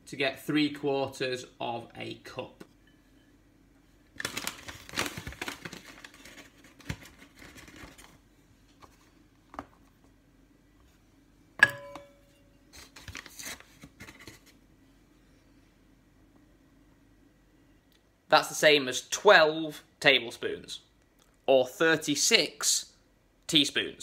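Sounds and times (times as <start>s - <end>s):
sharp metallic clink: 11.6s - 12.5s.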